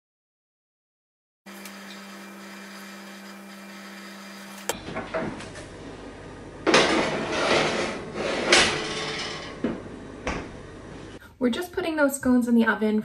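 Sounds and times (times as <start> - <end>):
knocks and clatter at oven: 4.8 - 5.7, 6.6 - 10.6
baking tray scraping onto rack: 6.6 - 10.0.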